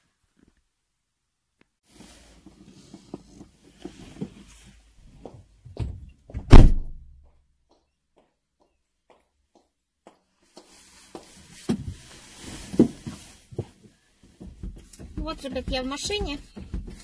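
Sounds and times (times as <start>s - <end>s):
car door shutting: 5.8s - 7.0s
rustling and small knocks: 7.2s - 17.0s.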